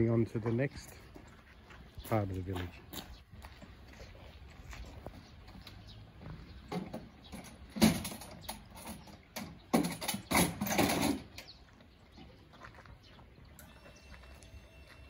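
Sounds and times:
metal ramp clanking: 6.7 - 11.4
metal ramp rattling: 6.7 - 11.5.

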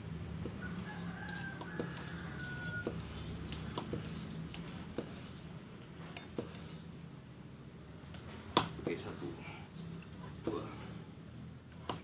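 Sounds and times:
rooster crowing: 0.6 - 3.4
hand air pump clicking: 0.9 - 4.7.

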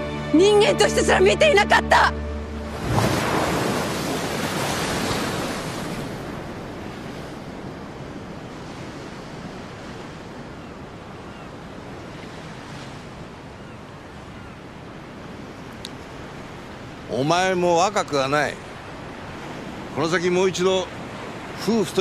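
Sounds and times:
sea waves breaking on rocks: 2.7 - 13.4, 16.0 - 22.0.

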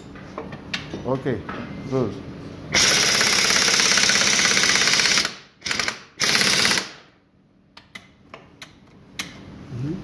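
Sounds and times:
impact wrench hammering: 2.7 - 7.1.

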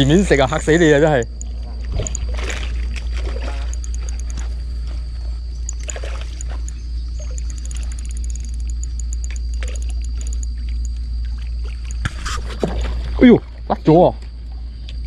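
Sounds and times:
fish splashing in water: 1.8 - 4.5, 5.7 - 13.7
faint high chirping: 5.3 - 11.0.

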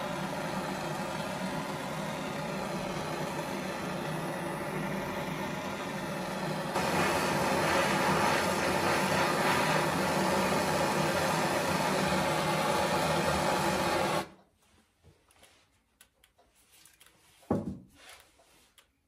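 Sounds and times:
gas torch flame roaring hiss: 0.0 - 14.4.

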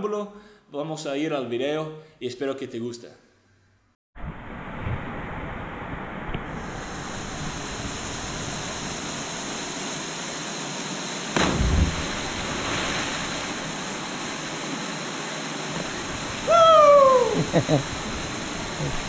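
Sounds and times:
heavy splash into water: 11.3 - 14.4
waterfall rushing: 11.3 - 19.0
person shouting: 16.4 - 17.5.

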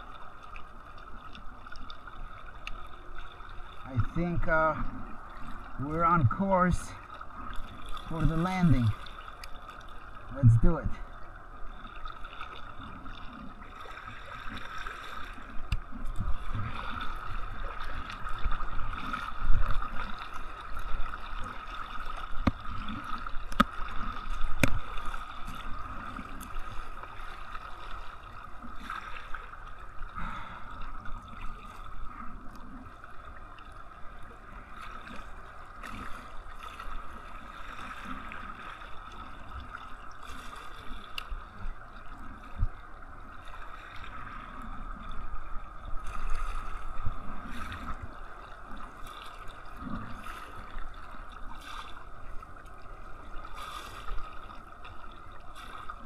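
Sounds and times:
water sloshing against kayak: 0.0 - 56.0
water thumps on hull: 22.3 - 25.0.

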